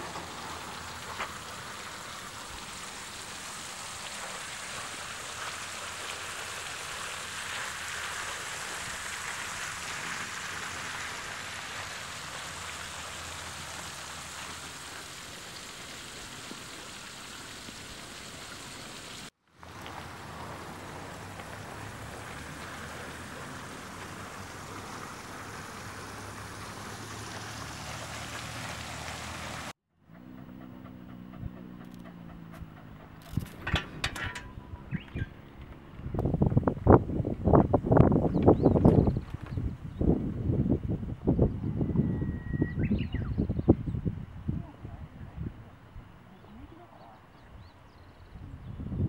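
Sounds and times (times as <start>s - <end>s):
running water flowing: 0.0s - 29.8s.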